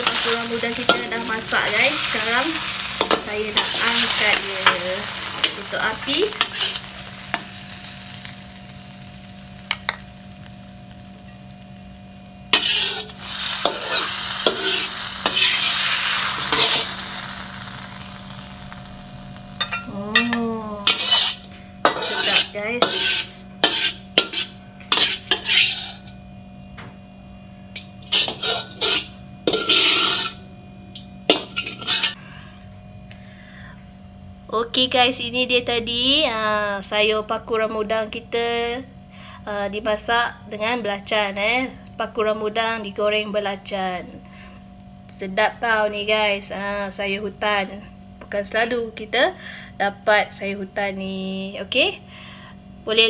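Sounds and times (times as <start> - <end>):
metal spatula scraping a pan: 0.0 - 7.8, 12.5 - 17.0, 19.6 - 26.2, 28.0 - 30.4, 31.3 - 32.2
greens sizzling in a pan: 0.0 - 26.2, 27.8 - 30.4, 31.3 - 32.2
faint electrical hum: 0.0 - 53.0.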